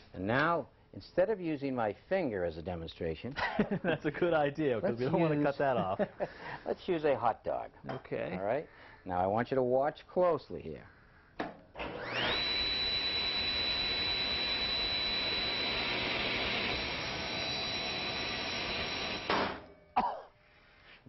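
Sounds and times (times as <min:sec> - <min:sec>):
table saw whining: 0:11.8 - 0:19.8.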